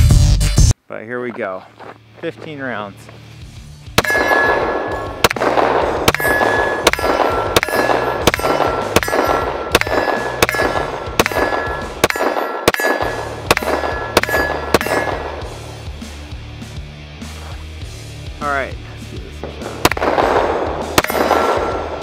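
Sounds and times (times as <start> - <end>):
pistol shots: 4.0 - 15.8, 19.4 - 22.0.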